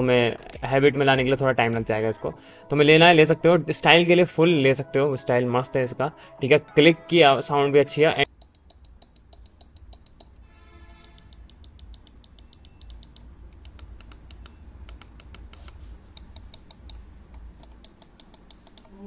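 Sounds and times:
computer mouse clicking: 8.2 - 10.4, 11.0 - 19.0.

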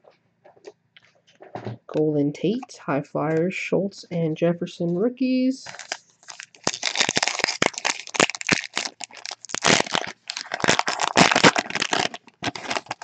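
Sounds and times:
plastic wrapper crinkling: 5.6 - 13.0
wrapper being torn open: 5.7 - 13.0.

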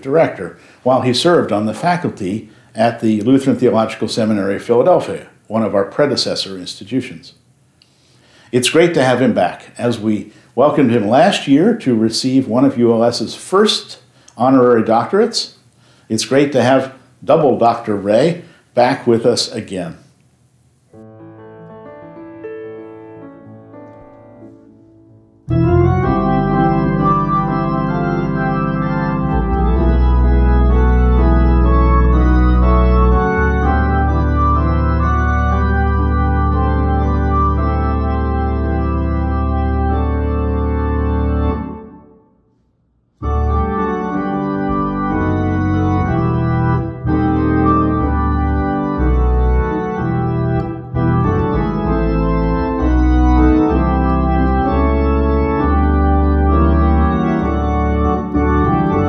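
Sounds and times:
organ playing sustained chords: 0.0 - 7.2, 8.5 - 15.4, 25.4 - 42.4, 43.2 - 59.0
deep bass: 25.5 - 41.7, 43.2 - 59.0.

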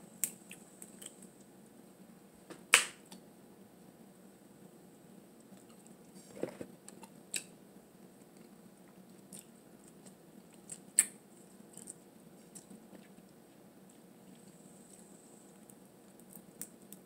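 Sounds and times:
quiet chewing: 5.4 - 7.5, 8.2 - 17.0
crab shell clicks and cracks: 15.6 - 17.0.

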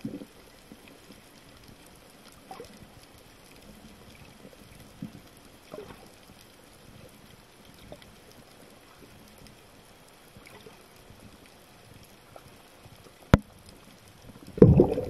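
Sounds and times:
water gurgles: 0.0 - 6.3, 10.3 - 15.0.

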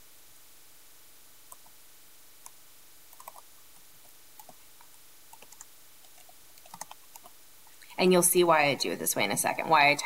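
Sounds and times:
typing on laptop keyboard: 3.1 - 3.5, 4.4 - 4.6, 5.3 - 7.4.

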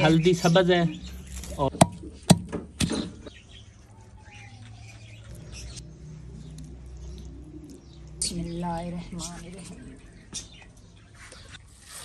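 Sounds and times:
small birds chirping: 0.0 - 12.0
pestle striking mortar: 1.7 - 3.1.

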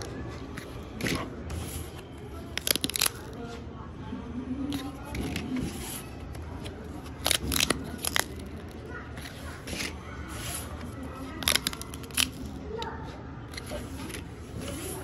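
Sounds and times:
paper tickets handled: 0.0 - 3.4, 4.7 - 12.8, 13.4 - 15.0
paper tabs tearing: 2.4 - 3.4, 7.0 - 10.0, 11.4 - 12.6.

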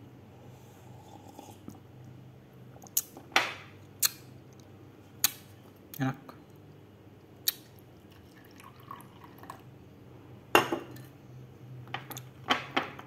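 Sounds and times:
coffee pouring into glass: 8.0 - 9.7.

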